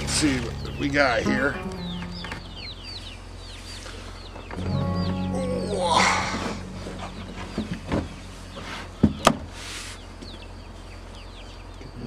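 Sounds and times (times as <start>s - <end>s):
birds chirping: 0.0s - 12.0s
steady low hum: 4.6s - 10.9s.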